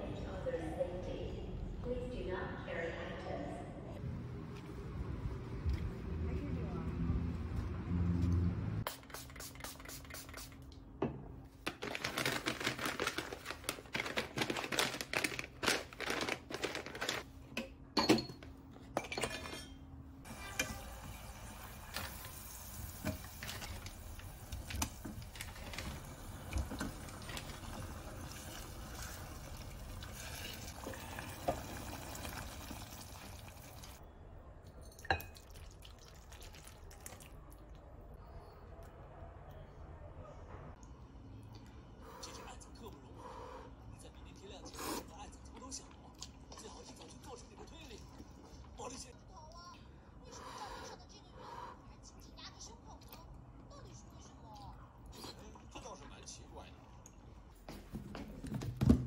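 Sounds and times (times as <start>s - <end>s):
steady cooking hiss: 20.2s - 25.2s.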